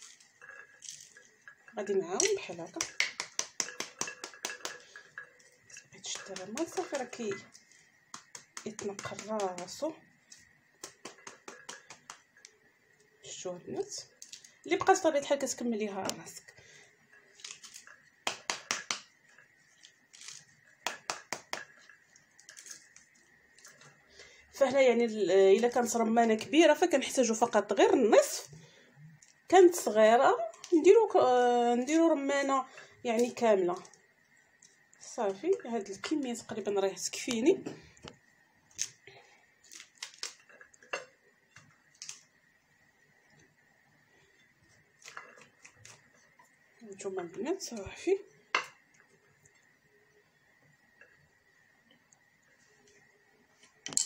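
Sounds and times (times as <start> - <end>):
spatula smacking pomegranate skin: 2.2 - 5.0, 6.0 - 9.8.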